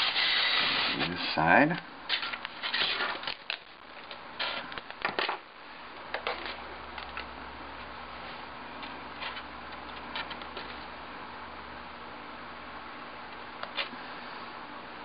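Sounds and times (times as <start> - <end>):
tape rustling: 2.1 - 5.4.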